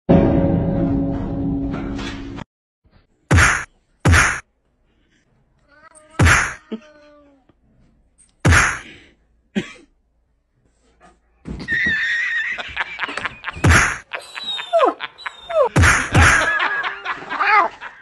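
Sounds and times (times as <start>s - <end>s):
sharp smack: 3.3s - 4.4s, 6.2s - 6.6s, 8.4s - 8.8s, 13.6s - 14.0s, 15.8s - 16.3s.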